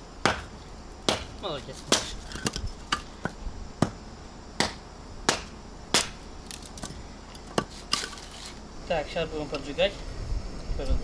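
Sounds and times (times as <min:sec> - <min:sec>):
hatchet chopping kindling: 0:00.2 - 0:04.0, 0:04.6 - 0:08.6.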